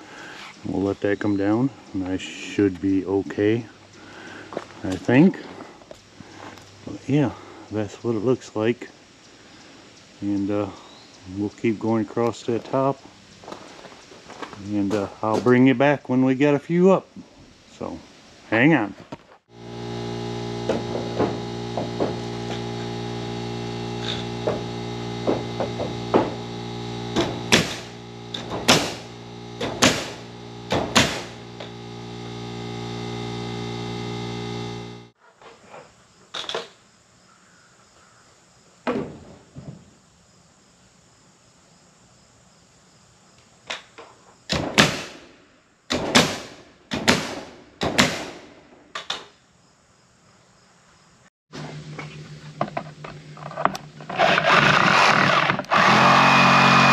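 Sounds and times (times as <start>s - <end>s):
air compressor humming: 19.5s - 35.2s, 51.5s - 56.9s
nail gun firing: 27.1s - 31.4s, 44.5s - 45.2s, 45.9s - 48.5s.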